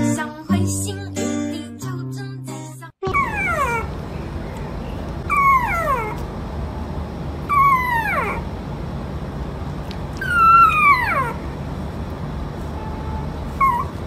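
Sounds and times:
puppy whimpering: 0:03.0 - 0:03.9, 0:05.2 - 0:06.2, 0:07.5 - 0:08.5, 0:10.2 - 0:11.4, 0:13.6 - 0:14.0.

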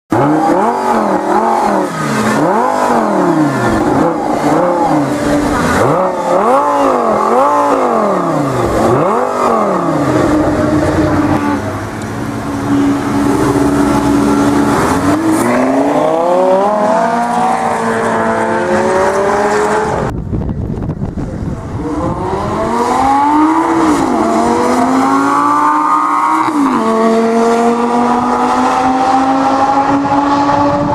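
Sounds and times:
car engine idling: 0:00.1 - 0:16.0
sports car engine revving: 0:00.1 - 0:20.1, 0:21.4 - 0:30.9
car accelerating: 0:00.1 - 0:20.2, 0:21.0 - 0:30.9.

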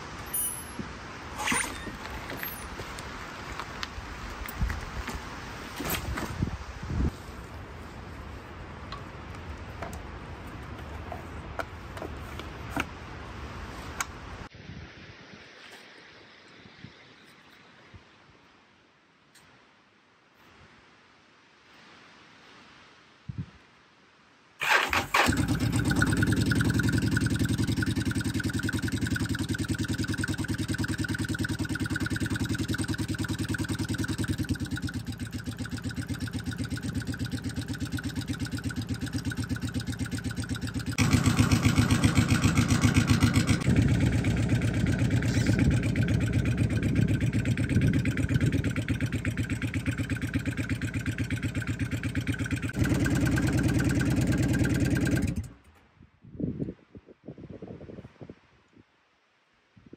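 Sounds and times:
motorcycle engine idling: 0:25.2 - 0:55.6.

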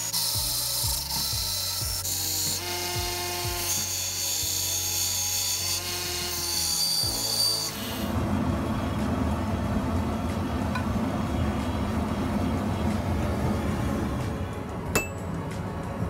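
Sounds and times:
belt grinder grinding metal: 0:00.0 - 0:08.2
low steady rumble: 0:08.1 - 0:16.0.

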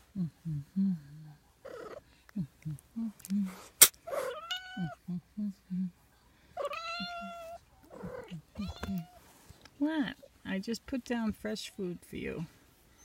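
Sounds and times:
cat meowing: 0:04.2 - 0:05.0, 0:06.6 - 0:09.2.

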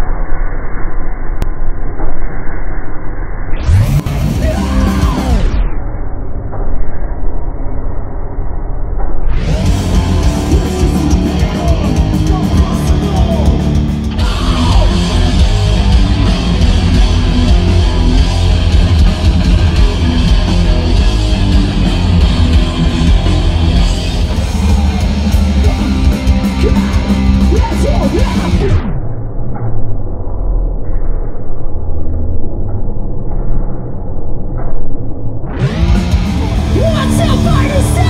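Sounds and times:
distorted electric guitars: 0:00.0 - 0:38.0
pounding drums: 0:09.5 - 0:28.7.

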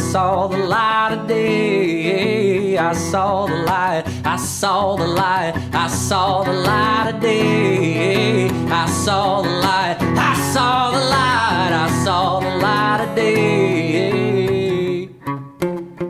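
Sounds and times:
man singing: 0:00.0 - 0:15.3
acoustic guitar strumming: 0:00.0 - 0:16.0.

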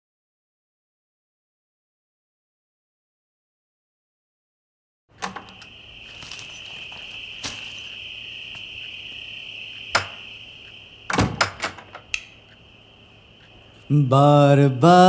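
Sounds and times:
crickets chirring: 0:05.1 - 0:15.0.

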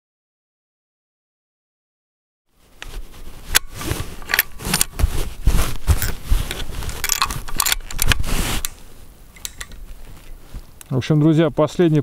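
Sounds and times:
metallic clicks and scrapes: 0:02.8 - 0:08.8, 0:09.4 - 0:10.4.

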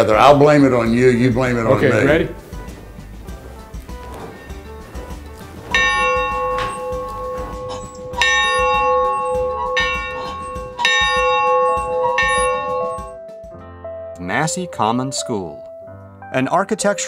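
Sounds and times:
large bell ringing: 0:05.6 - 0:13.2.

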